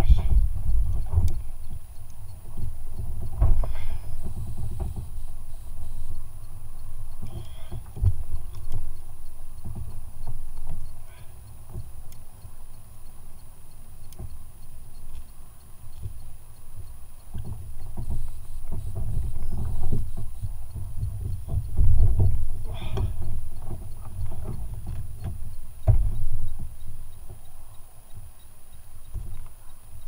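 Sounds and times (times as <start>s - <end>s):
water lapping against boat hull: 16.0s - 30.0s
sharp knock on hull: 25.8s - 26.2s.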